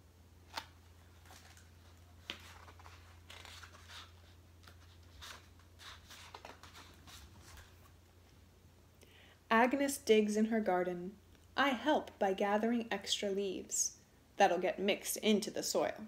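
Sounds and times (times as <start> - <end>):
paper rustling: 0.5 - 8.0.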